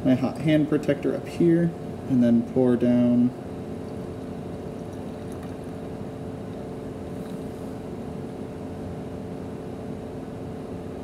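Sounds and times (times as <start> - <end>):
air handling machine hum: 0.0 - 11.0.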